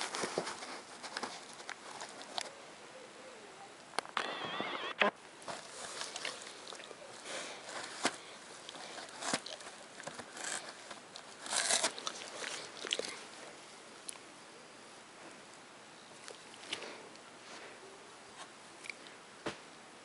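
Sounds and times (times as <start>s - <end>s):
dog tearing cardboard: 8.8s - 12.8s.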